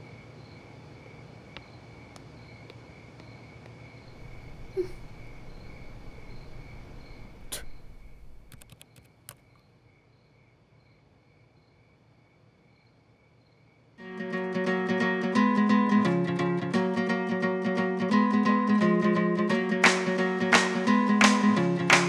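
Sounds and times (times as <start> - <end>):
crickets chirping: 0.0 - 14.0
low background hum: 4.1 - 8.6
sharp clicks: 5.6 - 9.4
acoustic guitar music: 14.0 - 22.0.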